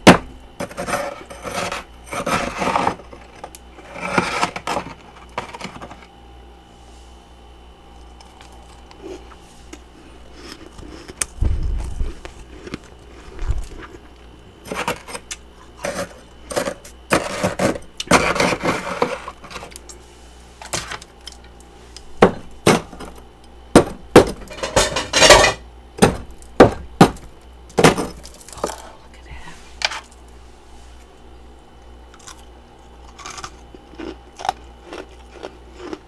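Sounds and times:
metal spoon scraping frost: 0:00.6 - 0:05.7, 0:14.6 - 0:19.7.

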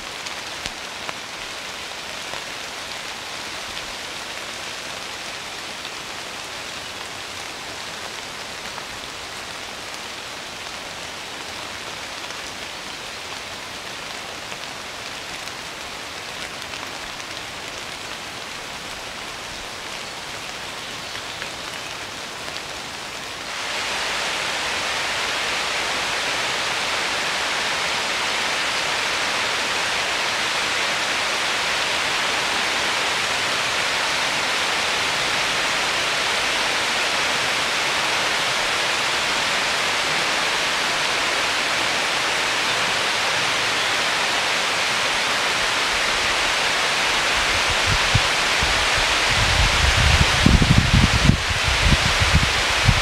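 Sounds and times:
heavy rain hissing: 0:00.0 - 0:53.0
wind buffeting microphone: 0:47.4 - 0:53.0.

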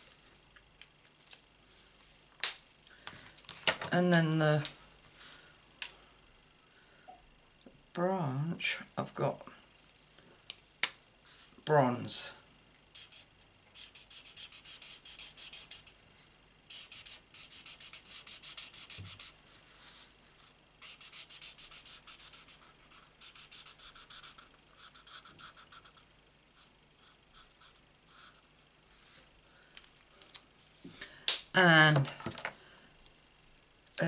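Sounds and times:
marker scratching on cardstock: 0:13.0 - 0:16.0, 0:16.7 - 0:19.4, 0:20.8 - 0:26.0, 0:26.6 - 0:28.6.

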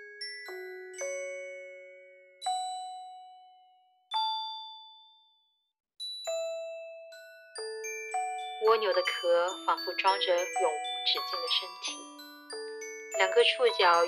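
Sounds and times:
bell-like struck notes: 0:07.9 - 0:14.0.

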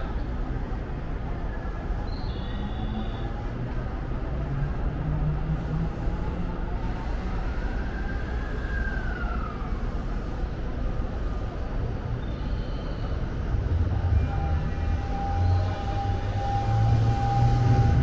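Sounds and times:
electric trains rumbling: 0:03.3 - 0:18.0
train motor whine: 0:13.0 - 0:18.0.

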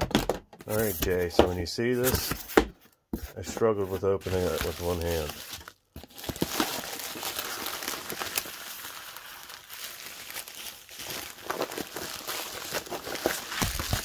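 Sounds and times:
envelopes rustling and crackling: 0:03.2 - 0:14.0.

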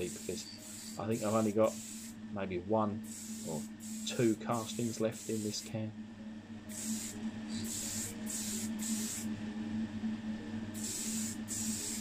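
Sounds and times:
aerosol spray hissing: 0:00.0 - 0:02.2, 0:03.0 - 0:05.7, 0:06.7 - 0:09.3, 0:10.8 - 0:12.0
steady low hum: 0:00.0 - 0:12.0.

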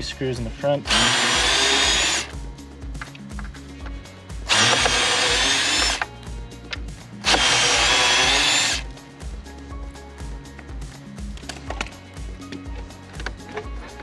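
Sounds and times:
screw gun backing out screws: 0:04.5 - 0:06.1.

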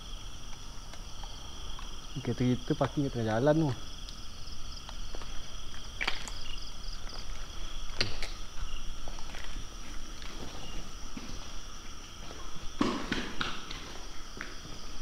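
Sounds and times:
crickets trilling: 0:00.0 - 0:15.0
footsteps on ground: 0:04.8 - 0:15.0.

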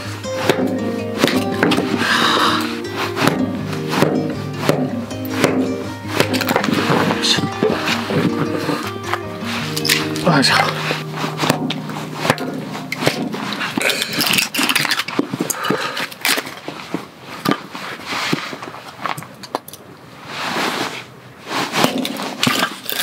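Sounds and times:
wood scraping and handling: 0:00.0 - 0:23.0
blade knocking on wood: 0:00.4 - 0:02.0, 0:03.2 - 0:08.9, 0:11.4 - 0:13.6.

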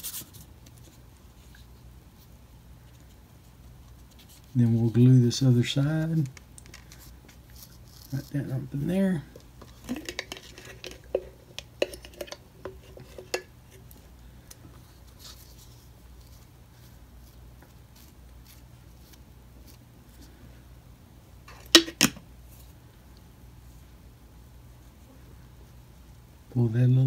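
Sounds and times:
bottle cap clicks and scrapes: 0:09.7 - 0:13.5
cap clacking onto bottle: 0:21.5 - 0:22.2.

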